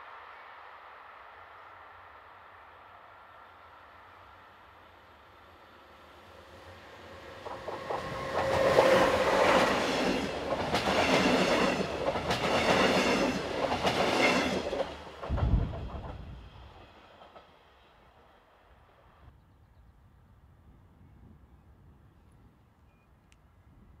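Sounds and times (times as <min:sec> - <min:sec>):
train wheels rumbling on rails: 0:06.5 - 0:18.3.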